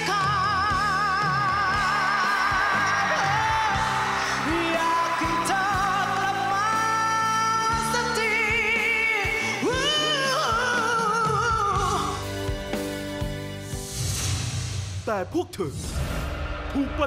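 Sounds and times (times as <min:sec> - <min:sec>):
woman singing into microphone: 0:00.0 - 0:12.2
backing music: 0:00.0 - 0:17.0.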